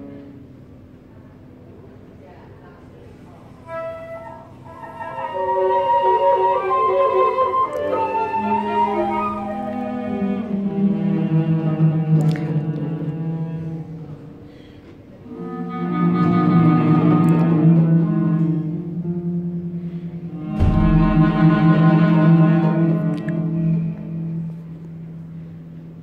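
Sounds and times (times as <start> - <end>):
flute cello and harp playing: 3.6 - 14.4, 15.2 - 26.0
low thump: 20.6 - 22.0.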